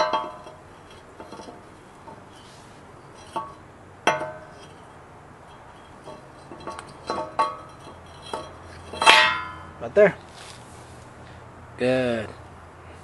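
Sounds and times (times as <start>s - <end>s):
metal rotor clinking on hub: 0.0s - 10.0s.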